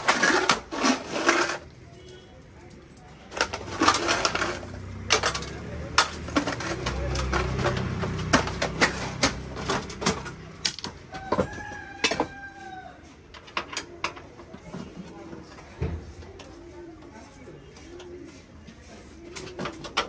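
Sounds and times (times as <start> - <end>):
glass jar being scrubbed: 0.0 - 1.7
rooster crowing: 11.1 - 13.1.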